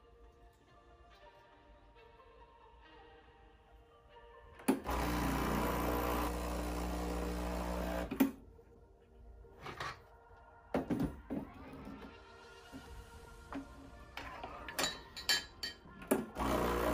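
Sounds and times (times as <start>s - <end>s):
pump humming: 4.8s - 8.1s, 16.4s - 16.9s.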